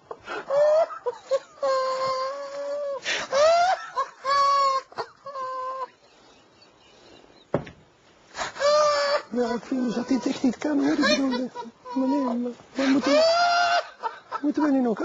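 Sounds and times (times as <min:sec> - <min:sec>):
man's squealing laughter: 0:00.5 - 0:06.0, 0:08.6 - 0:14.4.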